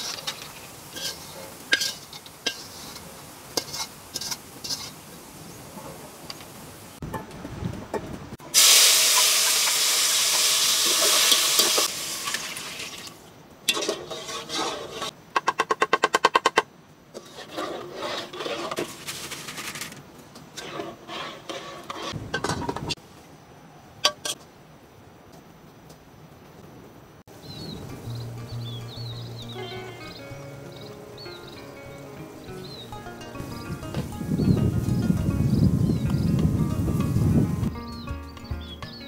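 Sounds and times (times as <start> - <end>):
utensil scraping: 0.0 - 5.0, 13.7 - 15.2, 17.1 - 23.0
loud hiss: 8.4 - 13.1.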